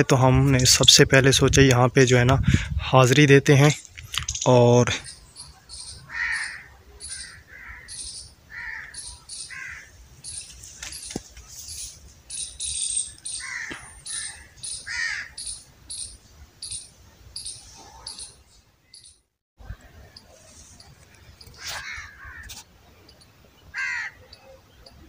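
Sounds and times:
small birds chirping: 0:03.7 - 0:25.0
crows cawing: 0:05.7 - 0:10.4, 0:13.2 - 0:16.0, 0:21.6 - 0:22.5, 0:23.7 - 0:24.2.

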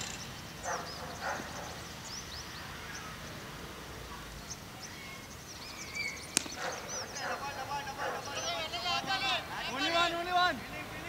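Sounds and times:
birds chirping: 0:00.0 - 0:11.0
cricket bat hitting ball: 0:06.4 - 0:06.8.

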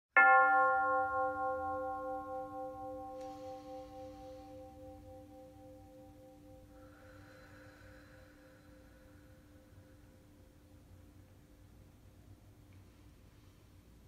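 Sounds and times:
singing bowl ringing: 0:00.2 - 0:07.6
faint high shimmer: 0:01.4 - 0:10.0.

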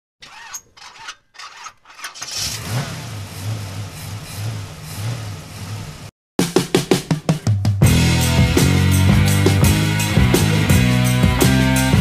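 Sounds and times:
car engine cranking and idling: 0:01.5 - 0:06.1.

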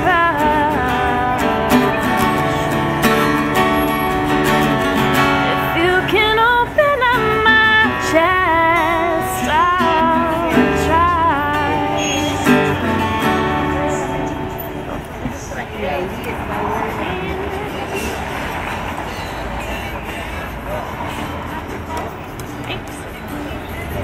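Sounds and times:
woman singing: 0:00.0 - 0:02.7, 0:05.5 - 0:14.7
strummed acoustic guitar: 0:00.0 - 0:24.0.

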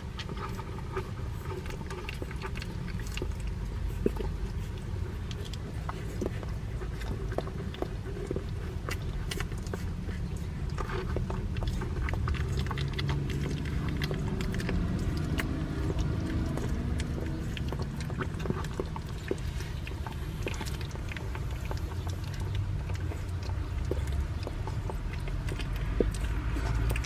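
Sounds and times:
low steady rumble: 0:00.0 - 0:27.0
puppies suckling: 0:00.0 - 0:27.0.

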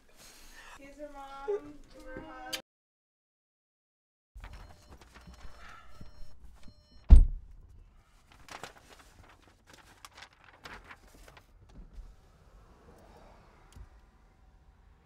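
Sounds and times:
fabric rustling: 0:08.2 - 0:11.6.

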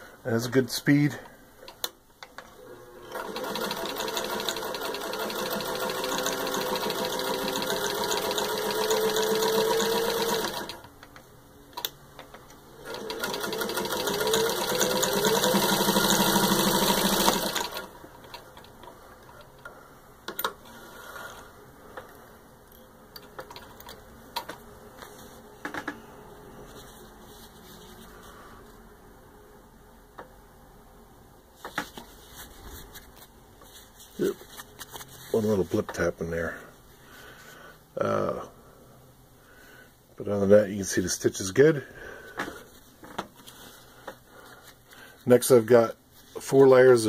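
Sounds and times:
sewing machine stitching: 0:02.6 - 0:10.9, 0:12.8 - 0:18.7.

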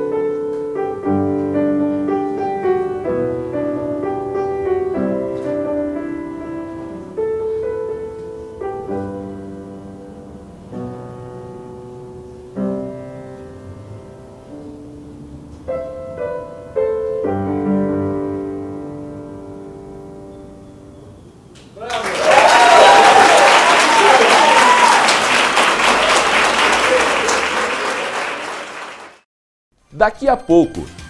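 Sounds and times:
slow solo piano: 0:00.0 - 0:21.5.

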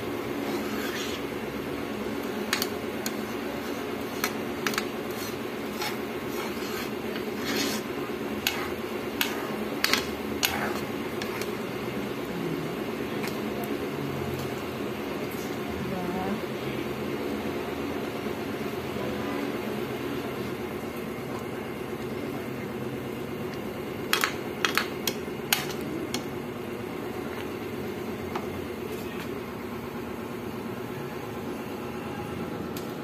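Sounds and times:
steady low hum: 0:00.0 - 0:33.0
metal spoon scraping frying pan: 0:00.4 - 0:01.3, 0:02.4 - 0:11.6.

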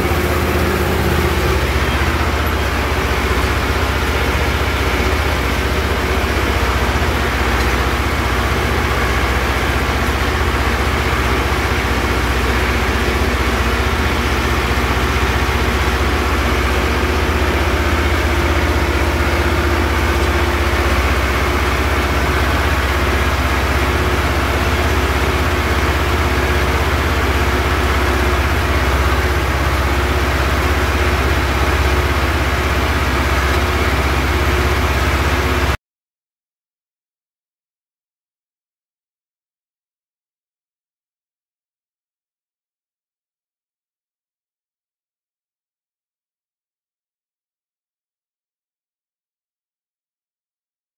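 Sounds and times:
tractor diesel engine running: 0:00.0 - 0:35.8.

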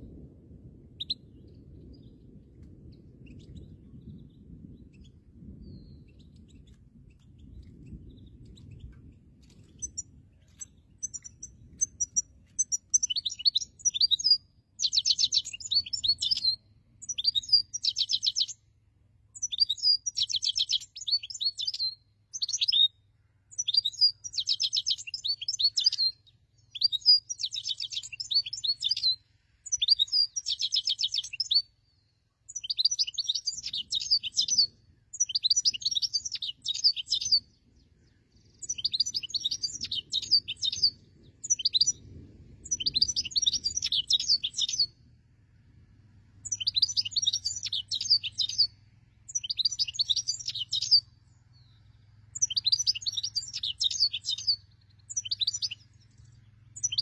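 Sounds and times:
finch singing high twitters: 0:03.2 - 0:18.6, 0:19.4 - 0:31.7, 0:32.5 - 0:42.0, 0:42.6 - 0:45.0, 0:46.4 - 0:51.8, 0:52.4 - 0:57.0.

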